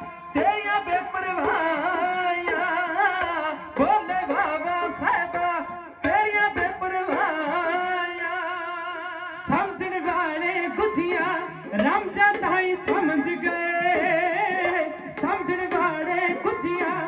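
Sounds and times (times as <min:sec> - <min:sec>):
man singing: 0:00.0 - 0:17.0
small hand drums: 0:00.0 - 0:17.0.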